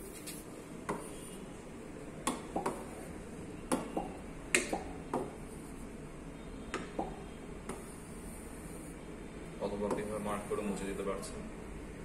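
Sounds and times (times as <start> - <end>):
stylus tapping on glass screen: 2.2 - 2.9, 3.7 - 5.4, 6.7 - 7.9.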